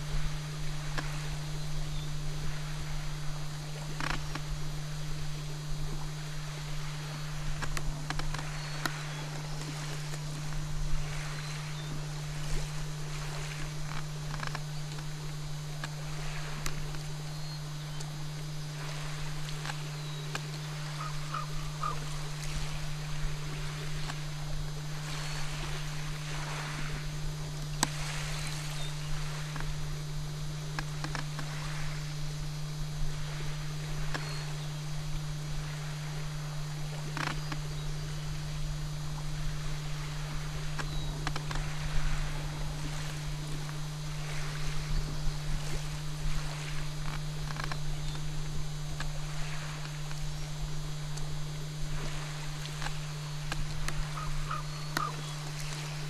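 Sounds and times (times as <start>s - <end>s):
faint water: 0.0s - 56.0s
steady low hum: 0.0s - 56.0s
faint chirps: 6.1s - 22.9s, 28.0s - 29.8s, 33.2s - 36.2s, 39.6s - 43.2s, 52.1s - 56.0s.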